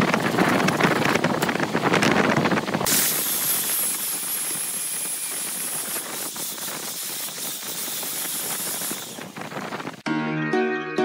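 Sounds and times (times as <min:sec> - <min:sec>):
angle grinder sanding: 0:02.9 - 0:09.4.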